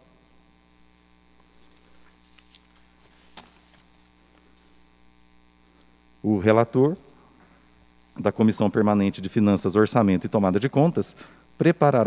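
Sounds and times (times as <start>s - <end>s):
low electrical hum: 0.0s - 12.0s
paper rustling: 0.6s - 4.2s.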